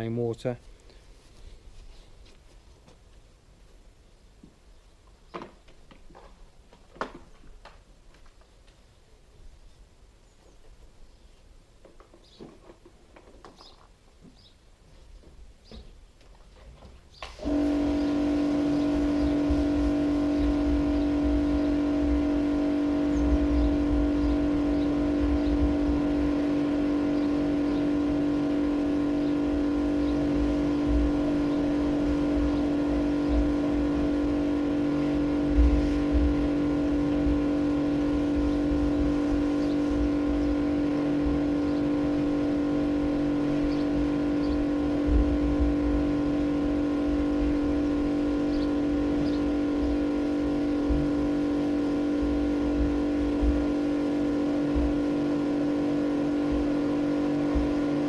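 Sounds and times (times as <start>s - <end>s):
pressure washer running: 17.2s - 58.0s
low rumble: 17.5s - 58.0s.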